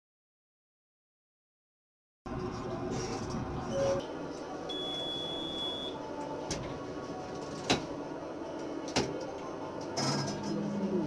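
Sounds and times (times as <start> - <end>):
high electronic beep: 4.7 - 6.0.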